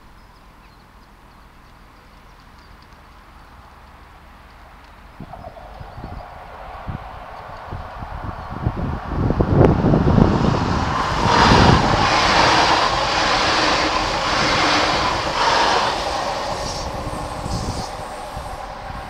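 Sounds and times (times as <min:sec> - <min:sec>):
electric train passing: 0:05.0 - 0:19.0.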